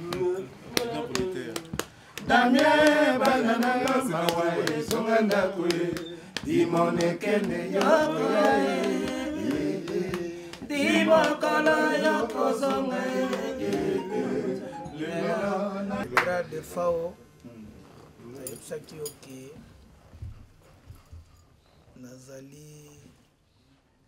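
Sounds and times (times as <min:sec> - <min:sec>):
voices singing long notes: 0:02.3 - 0:16.1.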